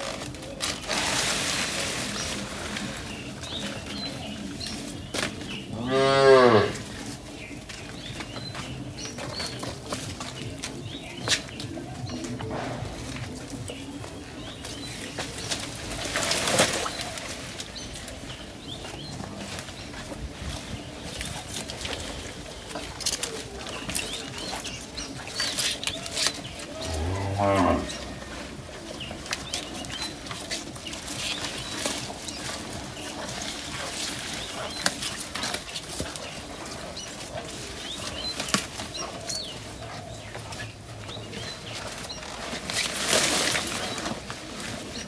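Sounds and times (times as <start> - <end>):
cattle chewing: 0.0 - 45.0
cow mooing: 5.7 - 6.9, 26.8 - 28.0.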